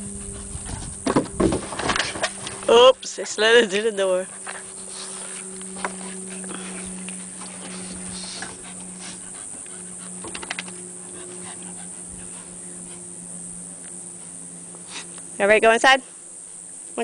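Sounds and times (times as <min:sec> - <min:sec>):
dogs panting: 0:00.0 - 0:01.0, 0:03.6 - 0:15.2
steady low hum: 0:00.0 - 0:17.0.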